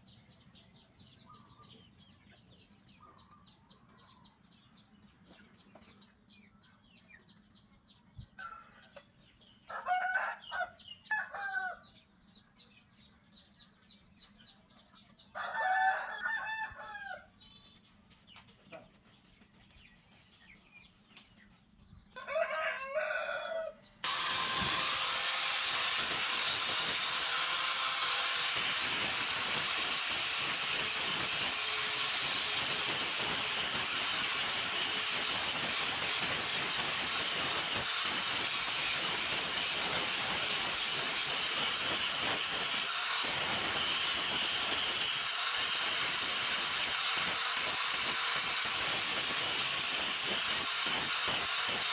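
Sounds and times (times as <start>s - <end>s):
rooster crowing: 9.7s - 11.8s, 15.4s - 17.3s, 22.2s - 23.8s
angle grinder with wire wheel: 24.0s - 51.9s.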